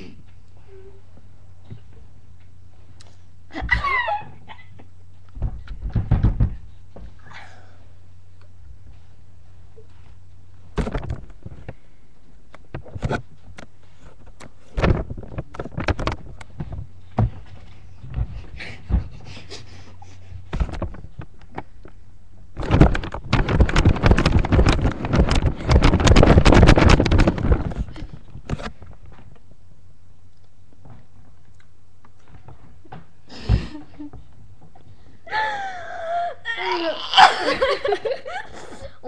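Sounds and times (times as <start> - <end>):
knocks and bumps on microphone: 5.3 - 7.2, 10.7 - 11.8, 12.6 - 19.4, 20.3 - 21.8, 22.5 - 29.4
rubbing and crackling on microphone: 8.7 - 29.7.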